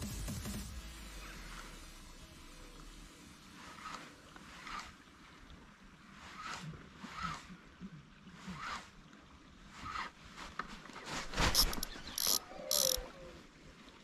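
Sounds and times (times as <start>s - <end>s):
fishing reel ratcheting: 11.5s - 13.0s.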